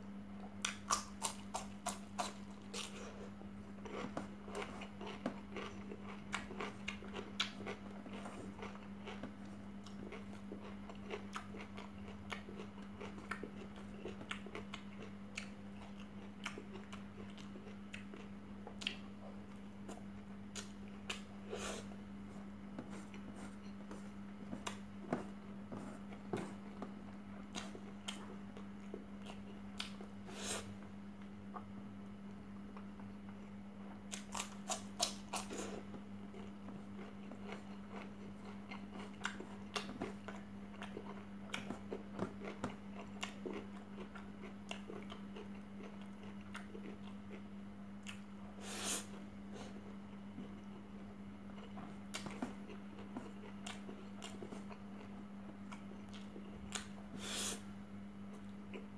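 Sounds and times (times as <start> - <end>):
steady low hum: 0.0 - 58.9
chewing and mouth clicks: 3.8 - 19.0, 34.1 - 47.4, 48.0 - 48.3, 51.5 - 57.0
cucumber crunching: 34.1 - 47.2.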